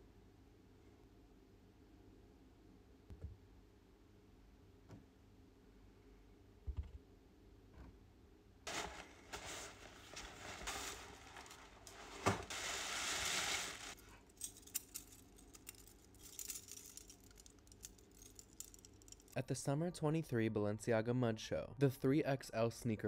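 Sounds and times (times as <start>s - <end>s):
tissue paper crinkling: 8.7s - 14.2s
metal chains clinking: 13.4s - 19.4s.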